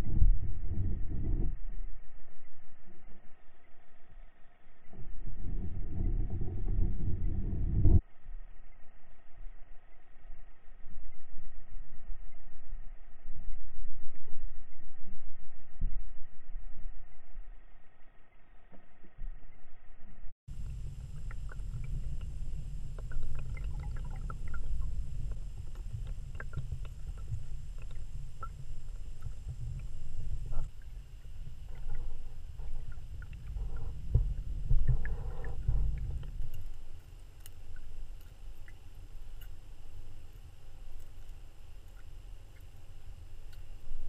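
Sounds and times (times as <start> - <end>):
muffled underwater water rumble: 0.0 - 44.0
light clicks and ticks: 20.6 - 43.8.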